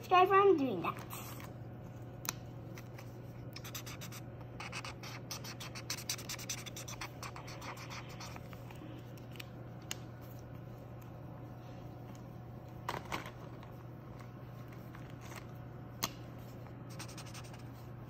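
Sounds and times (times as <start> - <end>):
marker scribbling on paper: 3.5 - 8.5, 16.9 - 17.8.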